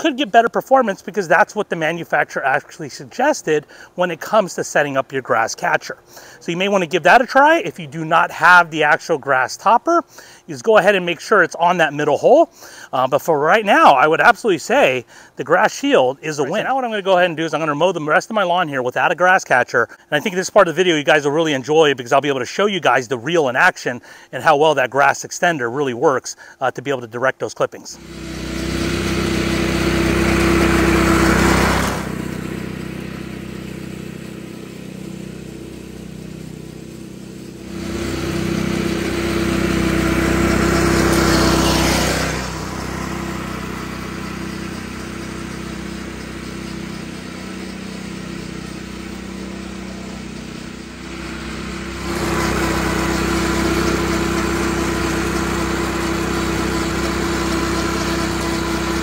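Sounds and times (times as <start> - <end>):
reel mower engine running: 4.2 - 9.1, 28.0 - 59.0.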